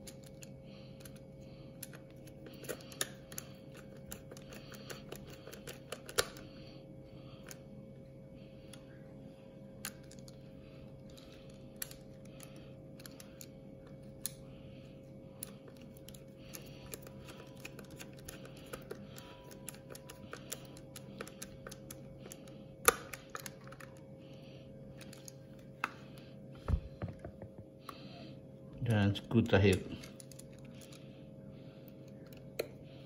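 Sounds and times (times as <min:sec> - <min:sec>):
faint steady hum: 0:00.0 - 0:33.0
knocks of handling: 0:26.6 - 0:27.7.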